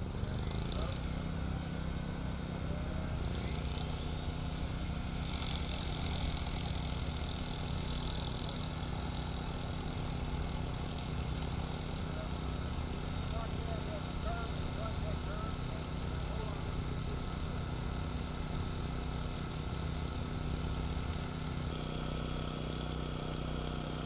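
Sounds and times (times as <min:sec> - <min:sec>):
rotary hammer drilling gravel: 0:00.0 - 0:01.6, 0:03.2 - 0:24.0.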